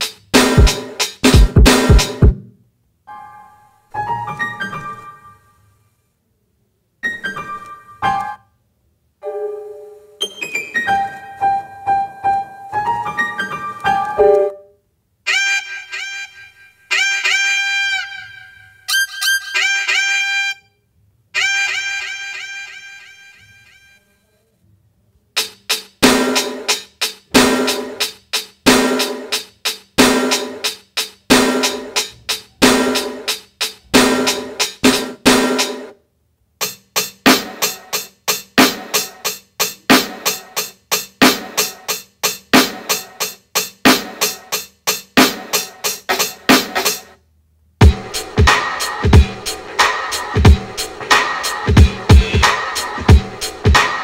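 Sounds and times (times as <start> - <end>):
snare and bass drum hits: 0.0 - 2.4, 25.4 - 28.1, 28.7 - 29.4, 30.0 - 30.7, 31.3 - 35.9, 37.2 - 37.9, 38.5 - 39.3, 39.9 - 40.6, 41.2 - 41.9, 42.5 - 43.2, 43.8 - 44.5, 45.2 - 47.0, 47.8 - 54.0
steady drum beat: 0.0 - 2.5, 25.4 - 35.9, 36.6 - 47.1, 47.8 - 54.0
saxophone playing a jingle: 15.3 - 20.7, 21.4 - 24.2, 52.0 - 52.6.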